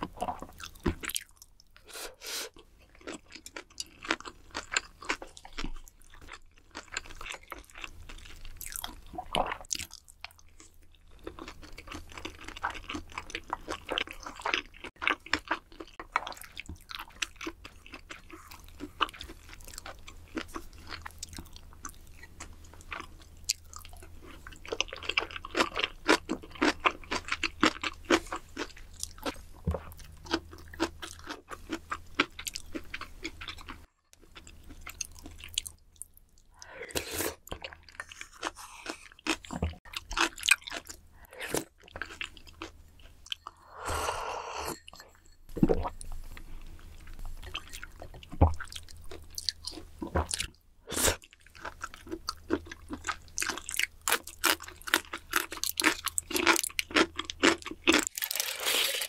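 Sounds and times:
food chewing and crunching: 0:00.0 - 0:43.8, 0:44.7 - 0:59.0
slurping from a spoon: 0:36.6 - 0:39.2, 0:43.4 - 0:46.0, 0:58.3 - 0:59.0.

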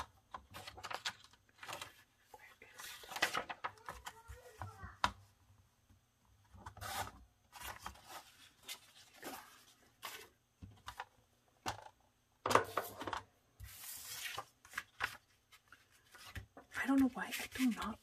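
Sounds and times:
paper rustling and scraping: 0:06.6 - 0:11.0, 0:12.7 - 0:18.0.

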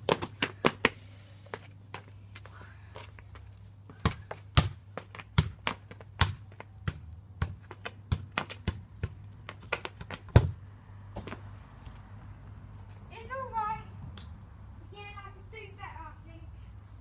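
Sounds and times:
studded boots clacking on paving: 0:07.4 - 0:10.6.

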